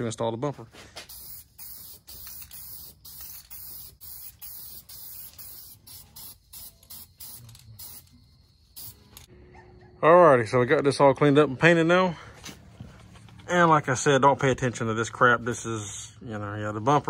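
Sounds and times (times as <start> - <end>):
aerosol can spraying: 1.1 - 8.1, 8.8 - 9.3.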